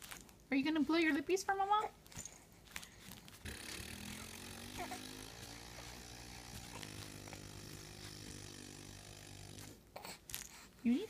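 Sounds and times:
low motor hum: 0:03.4 - 0:09.8.

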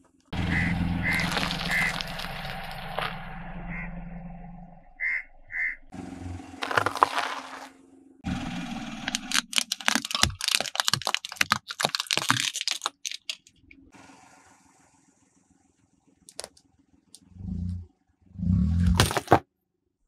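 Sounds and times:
low rumble: 0:00.3 - 0:06.7
tyre crushing balls with cracks: 0:01.1 - 0:03.2, 0:06.6 - 0:07.8, 0:09.0 - 0:13.2, 0:18.8 - 0:19.4.

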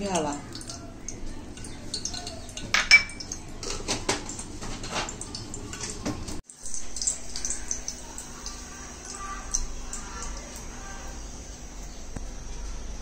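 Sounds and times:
glass bowls clinking: 0:01.6 - 0:04.2.

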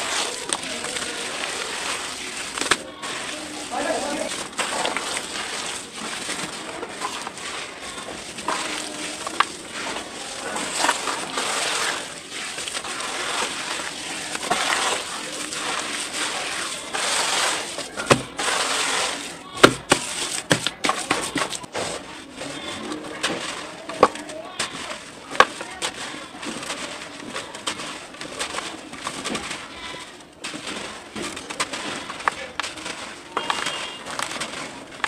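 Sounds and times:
damp dirt crumbling by hand: 0:00.0 - 0:35.0
dirt clumps snapping: 0:23.9 - 0:35.0.

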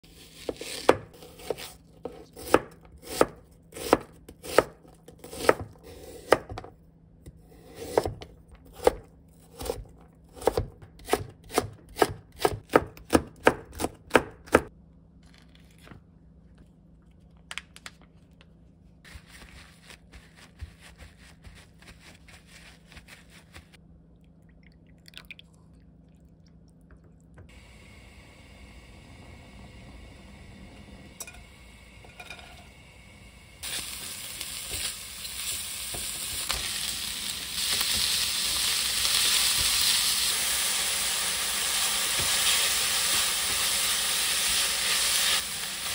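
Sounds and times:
knife chopping on cutting board: 0:00.4 - 0:06.7, 0:07.6 - 0:14.7.

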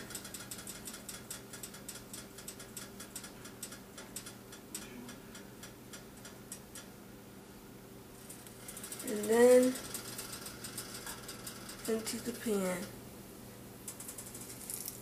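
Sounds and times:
faint steady hum: 0:00.0 - 0:15.0
hot oil crackling and popping: 0:14.0 - 0:15.0.

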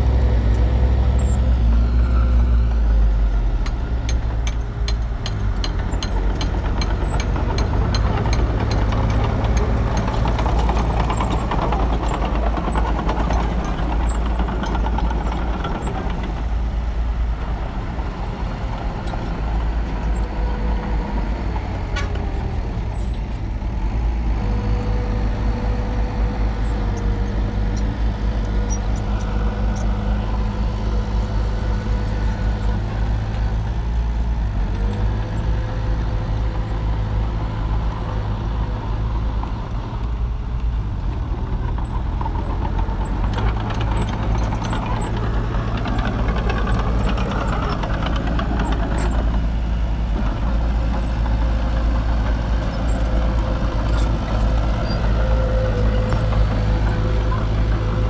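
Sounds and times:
diesel truck engines running: 0:00.0 - 0:58.0.

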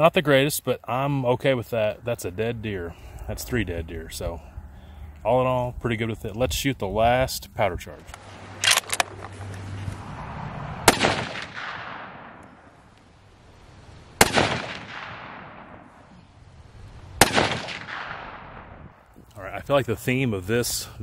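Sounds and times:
rifle shots ringing out: 0:08.2 - 0:09.3, 0:10.8 - 0:12.8, 0:14.2 - 0:16.1, 0:17.2 - 0:18.8.

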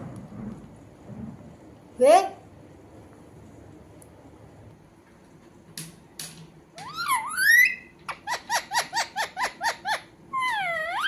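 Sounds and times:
parakeet squawking and chirping: 0:06.8 - 0:11.0.

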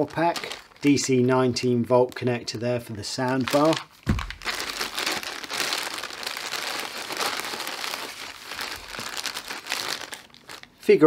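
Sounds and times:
packaging crinkling: 0:00.0 - 0:02.5, 0:03.1 - 0:10.8.

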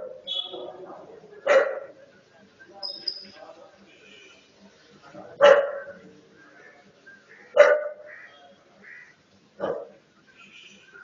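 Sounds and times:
dog barking: 0:01.5 - 0:02.0, 0:05.4 - 0:06.0, 0:07.5 - 0:08.1, 0:09.6 - 0:10.0.

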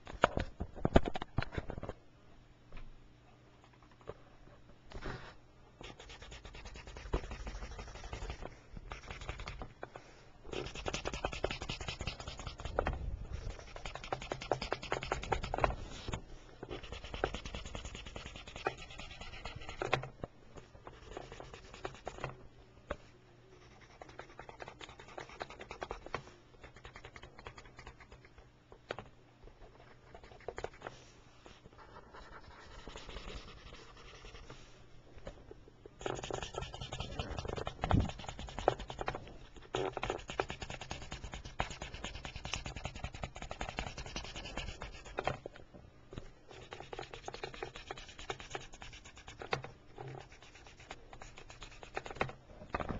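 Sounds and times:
coloring tool scratching on paper: 0:05.8 - 0:09.6, 0:10.5 - 0:20.0, 0:20.8 - 0:22.3, 0:23.6 - 0:28.3, 0:31.8 - 0:34.6, 0:36.0 - 0:45.4, 0:46.5 - 0:52.3.

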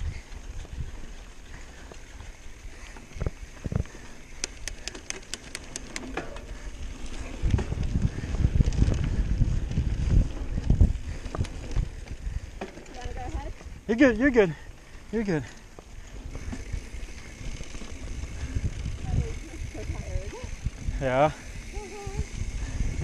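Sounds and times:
bike rattling over bumps: 0:00.0 - 0:23.0
bike tyres on dirt: 0:00.0 - 0:23.0
wind rumbling on microphone: 0:00.0 - 0:23.0
sharp clicks: 0:04.3 - 0:06.2.

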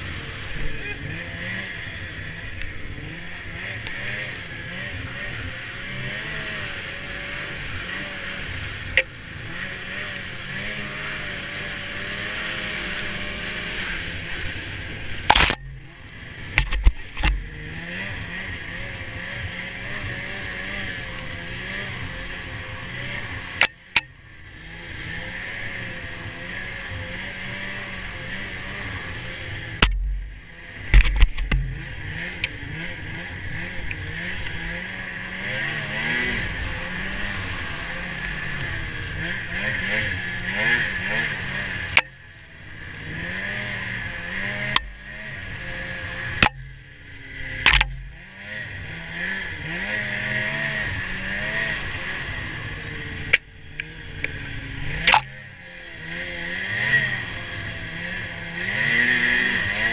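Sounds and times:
snowmobile engine revving: 0:00.0 - 0:59.9.

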